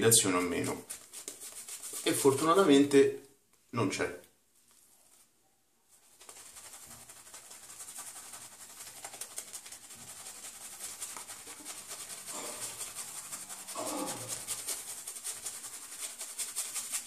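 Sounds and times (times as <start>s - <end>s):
shaving brush swishing on skin: 0.4s - 2.7s, 5.9s - 17.0s.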